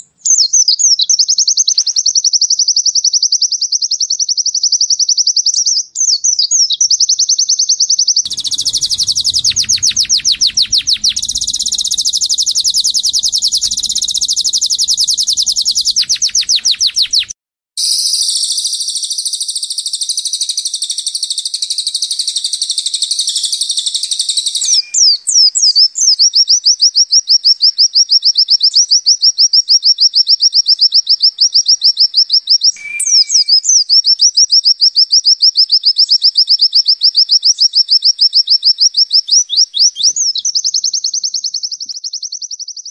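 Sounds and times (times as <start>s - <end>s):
cage birds trilling: 8.1s - 17.3s.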